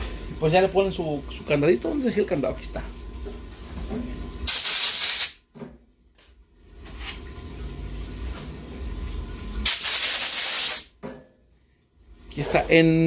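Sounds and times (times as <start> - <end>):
pressurized air blasts hissing: 4.5 - 5.4, 9.7 - 10.9.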